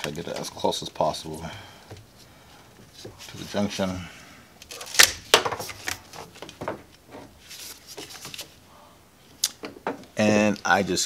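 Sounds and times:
cable and tool rustling: 4.6 - 8.6.

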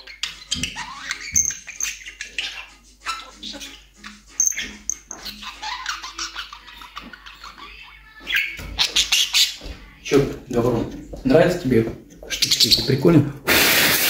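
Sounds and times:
budgerigar chattering: 0.0 - 10.2, 12.2 - 13.0.

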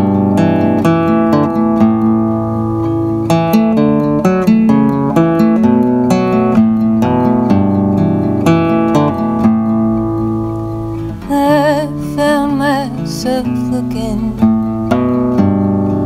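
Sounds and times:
acoustic guitar: 0.0 - 16.0
woman singing with vibrato: 11.2 - 14.6.

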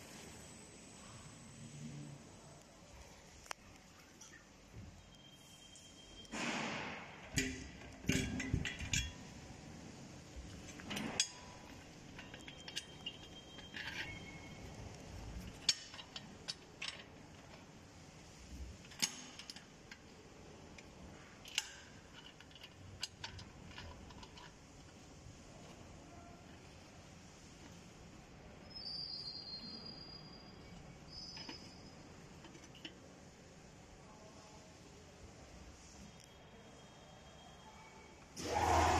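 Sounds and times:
faint background noise: 0.0 - 38.9
metallic clicks and clinks: 10.7 - 14.8.

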